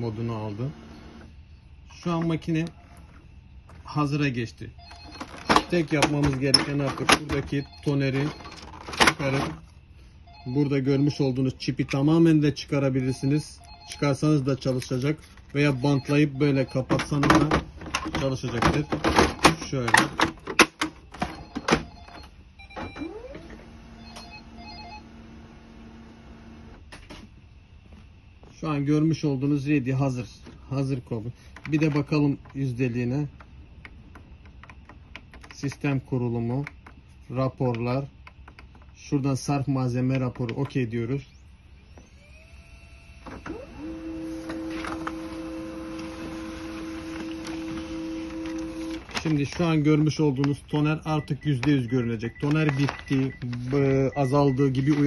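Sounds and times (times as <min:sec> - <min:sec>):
printer motor whining and humming: 0:00.0 - 0:01.4, 0:21.1 - 0:26.8, 0:40.6 - 0:49.9, 0:52.4 - 0:55.0.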